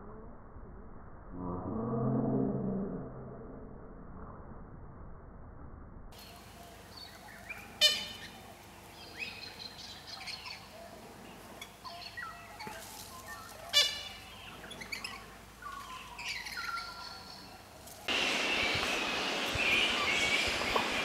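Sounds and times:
birds screeching: 0:06.2 - 0:11.0, 0:11.6 - 0:21.0
soft chirps and whistles: 0:18.1 - 0:21.0.

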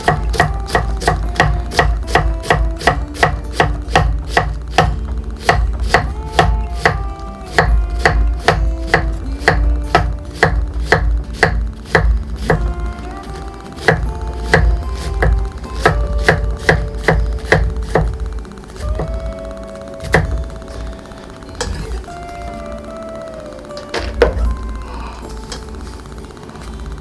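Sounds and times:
knife chopping on wooden board: 0:00.1 - 0:12.1, 0:13.9 - 0:18.1.

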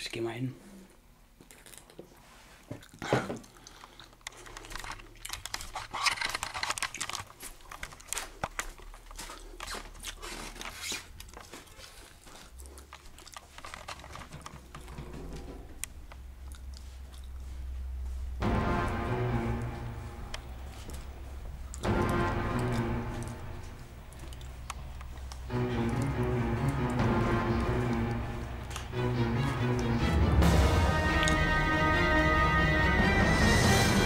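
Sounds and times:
camcorder handling rustling: 0:04.2 - 0:11.7, 0:12.8 - 0:15.0
low steady hum: 0:14.6 - 0:33.3
music: 0:18.1 - 0:34.0.

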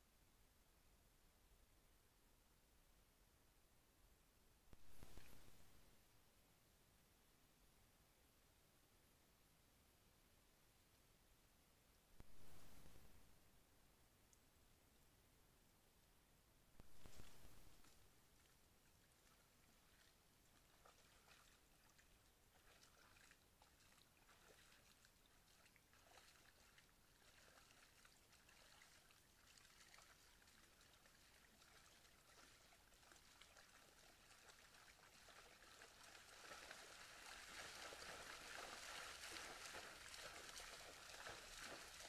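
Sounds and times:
trickling and splashing water: 0:18.4 - 0:42.0.

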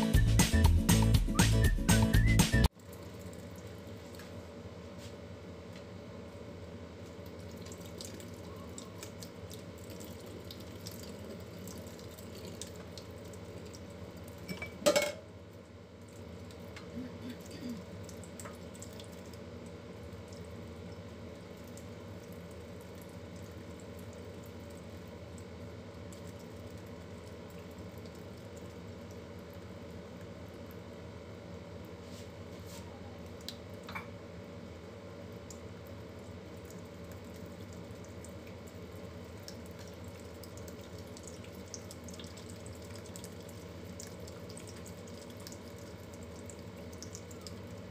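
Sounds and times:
tap water splashing into sink: 0:18.1 - 0:19.4.

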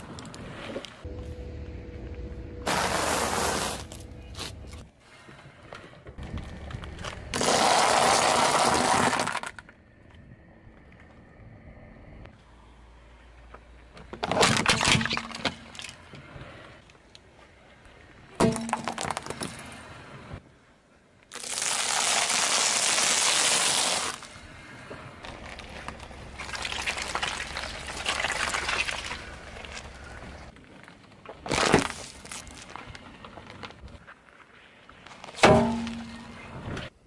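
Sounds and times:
popcorn crunching under tyre: 0:06.4 - 0:09.6, 0:21.3 - 0:24.3, 0:25.2 - 0:33.9
plastic scoop cracking under tyre: 0:06.9 - 0:09.7, 0:21.3 - 0:24.3, 0:31.3 - 0:33.9.

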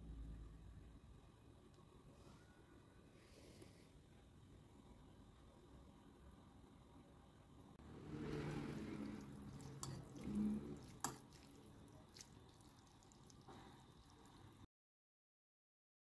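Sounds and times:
wet sloshing of noodles: 0:07.8 - 0:14.7
fork clicking against bowl: 0:09.5 - 0:11.6.

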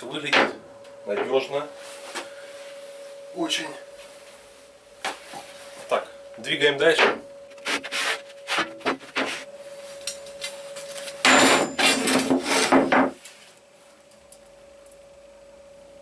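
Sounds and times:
faint steady hum: 0:00.0 - 0:16.0
metal scraping on plywood: 0:11.8 - 0:12.9.

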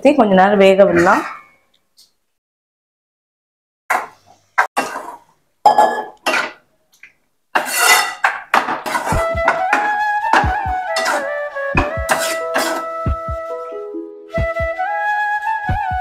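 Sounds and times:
ladle clattering on metal pans: 0:03.9 - 0:06.6, 0:07.6 - 0:12.9
background music: 0:09.2 - 0:16.0.

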